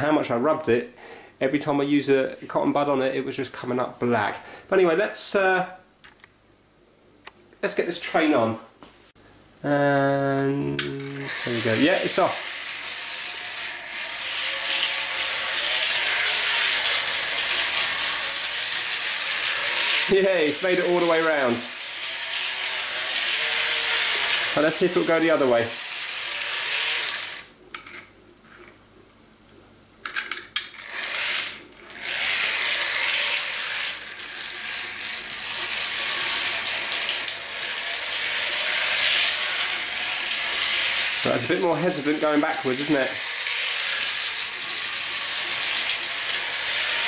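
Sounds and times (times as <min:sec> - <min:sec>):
model train motor whirring: 0:10.8 - 0:27.5, 0:30.8 - 0:47.0.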